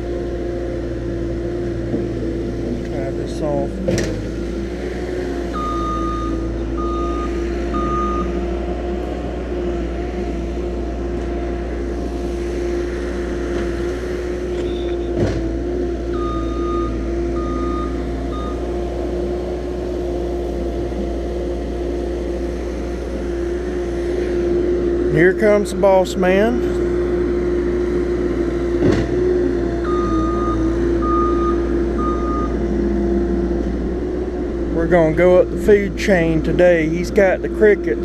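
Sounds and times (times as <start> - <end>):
machine engine running: 0.0 - 38.0
reversing alarm beeping: 5.5 - 8.5, 14.5 - 15.2, 16.1 - 18.7, 29.8 - 32.6.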